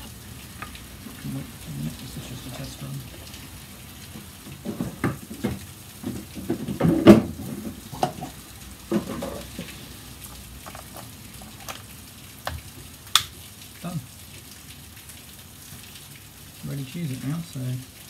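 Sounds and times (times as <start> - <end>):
faint rain hissing: 0.0 - 18.0
plastic knocks and clatter: 4.2 - 9.7.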